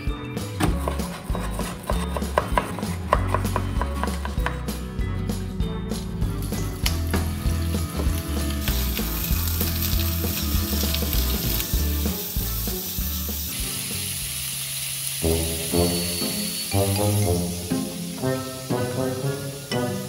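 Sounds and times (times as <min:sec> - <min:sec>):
meat sizzling in oil: 0:06.9 - 0:20.0.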